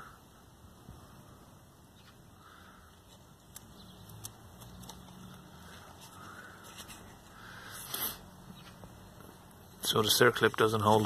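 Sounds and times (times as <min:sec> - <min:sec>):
soft rustles: 0:04.3 - 0:09.6.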